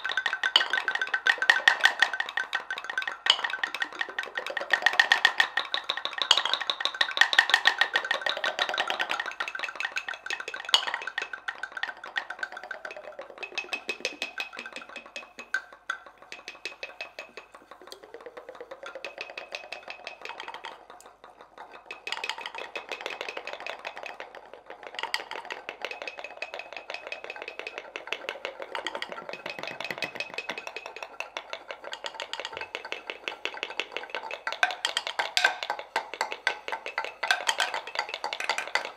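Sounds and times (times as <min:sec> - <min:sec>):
wooden mortars clicking and tapping: 0:00.0 - 0:38.9.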